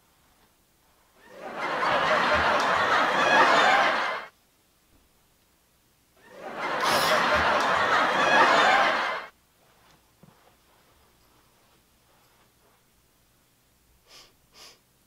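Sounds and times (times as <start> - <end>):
studio audience laughing: 1.2 - 4.3, 6.2 - 9.3.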